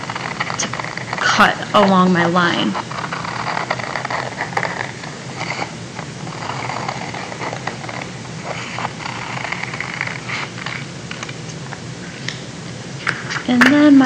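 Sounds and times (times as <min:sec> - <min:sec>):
scissors snipping paper: 0:00.0 - 0:01.9
paper rustling: 0:00.0 - 0:12.4
steady low hum: 0:00.0 - 0:14.0.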